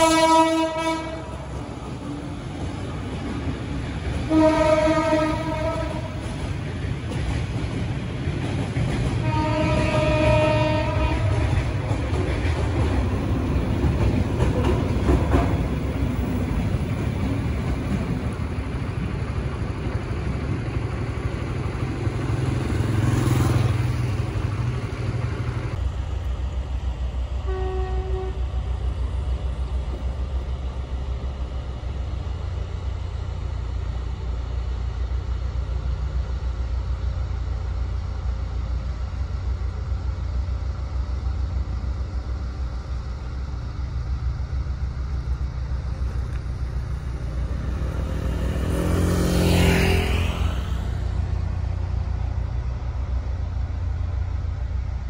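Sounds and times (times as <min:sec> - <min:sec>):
train horn: 0:00.0 - 0:01.5, 0:04.2 - 0:06.4, 0:09.2 - 0:11.7, 0:27.4 - 0:28.6, 0:48.2 - 0:51.2
freight train rumbling past: 0:00.0 - 0:55.0.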